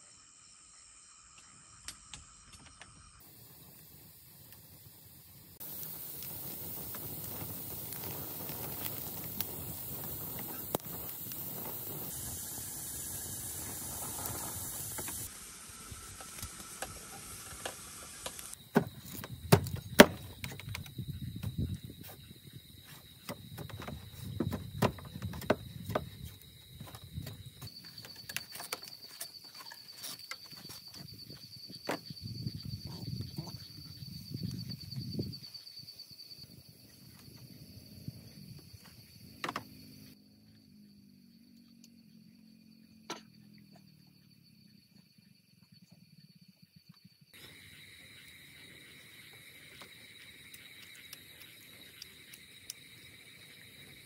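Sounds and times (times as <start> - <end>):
high insect trill: 0.0 - 54.0
wood fire crackling: 3.4 - 20.7, 47.4 - 54.0.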